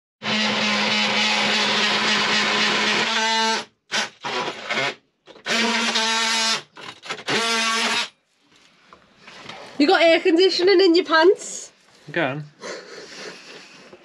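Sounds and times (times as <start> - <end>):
power tool motor humming: 0.2 - 8.2.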